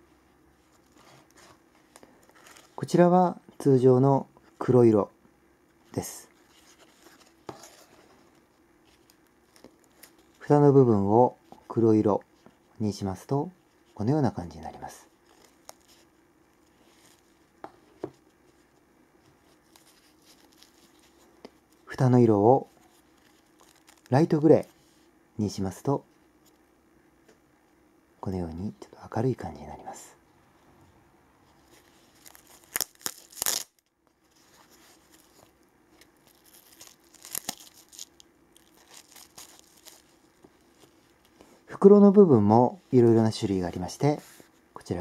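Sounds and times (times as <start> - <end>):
soft fabric handling: 5.8 - 10.5, 31.4 - 42.0
hook-and-loop fastener ripping: 32.2 - 33.9, 36.2 - 40.1.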